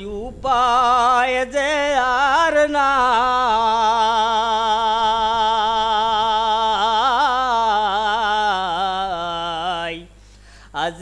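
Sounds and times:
man singing with vibrato: 0.0 - 11.0.

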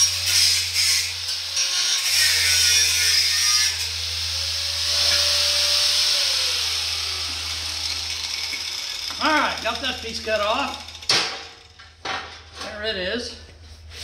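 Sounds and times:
angle grinder cutting steel: 0.0 - 12.0.

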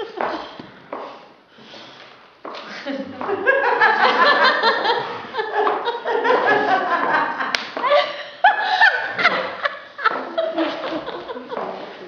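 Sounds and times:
people laughing: 0.0 - 0.6, 2.6 - 12.0
sharp slap: 7.5 - 7.9.

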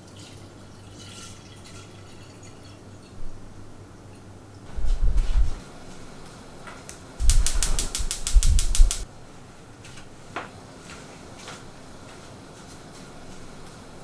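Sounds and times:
gas burner igniter clicking: 6.9 - 9.1.

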